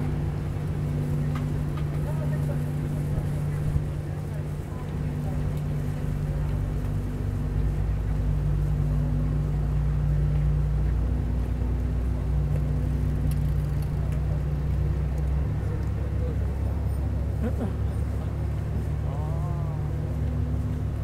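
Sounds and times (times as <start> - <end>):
low engine drone: 0.0 - 21.0.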